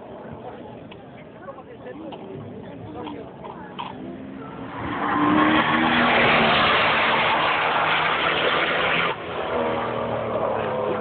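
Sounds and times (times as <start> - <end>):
car engine passing at speed: 4.2 - 11.0.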